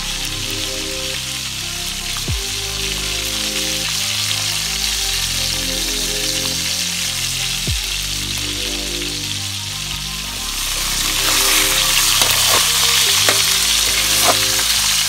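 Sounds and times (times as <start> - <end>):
fish sizzling in hot oil: 0.0 - 15.0
oil popping: 10.8 - 15.0.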